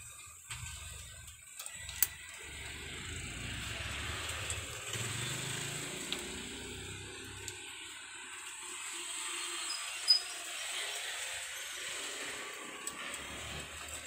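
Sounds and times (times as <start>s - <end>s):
vehicle engine running: 0.6s - 8.0s.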